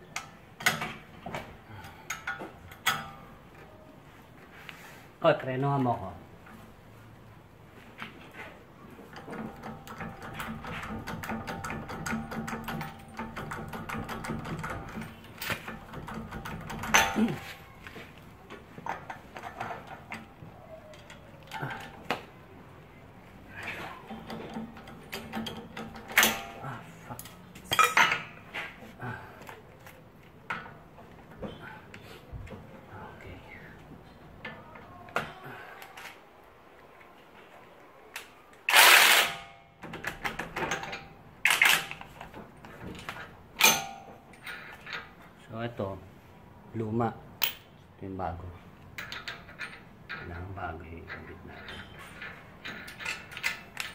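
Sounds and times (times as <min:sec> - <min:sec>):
metal clank: 0:11.2 - 0:17.5
metal tools clattering: 0:23.6 - 0:28.8, 0:48.9 - 0:53.9.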